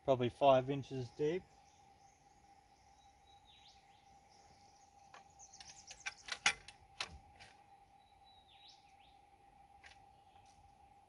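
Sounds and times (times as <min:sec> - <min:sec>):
steady high hum: 0:00.0 - 0:11.0
bird calling: 0:00.6 - 0:10.9
sharp metal clicks and knocks: 0:05.6 - 0:07.2.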